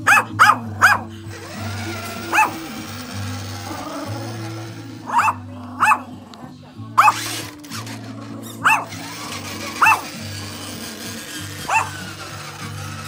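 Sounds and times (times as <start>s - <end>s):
dog barking: 0.0s - 1.1s, 2.1s - 2.8s, 5.0s - 6.2s, 7.0s - 7.4s, 8.6s - 10.2s, 11.6s - 12.1s.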